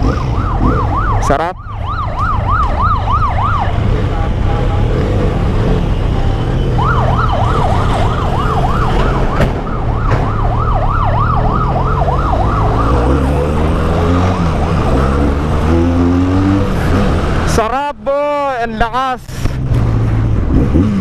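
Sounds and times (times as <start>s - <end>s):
yelp siren wailing: 0.0s - 4.4s, 6.0s - 16.4s.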